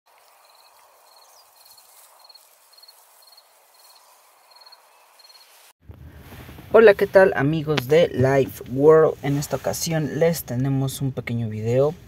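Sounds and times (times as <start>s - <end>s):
soft outdoor hiss: 0.1s - 12.0s
cricket chirping: 0.2s - 5.6s.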